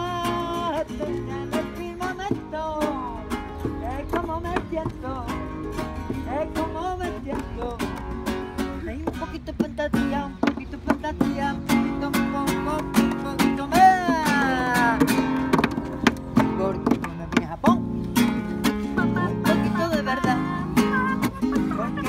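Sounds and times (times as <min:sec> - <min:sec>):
person singing: 0:00.0 - 0:15.5, 0:18.7 - 0:22.0
acoustic guitars strumming: 0:00.0 - 0:22.0.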